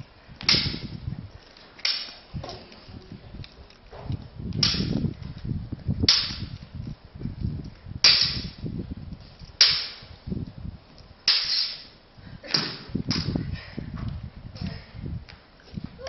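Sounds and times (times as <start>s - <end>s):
swords clashing: 1.8s - 2.3s, 11.3s - 11.9s.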